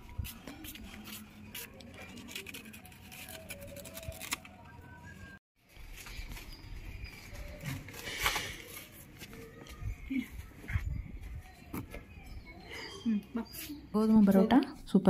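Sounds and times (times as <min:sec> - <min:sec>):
knife cutting leaves: 0:00.2 - 0:04.5.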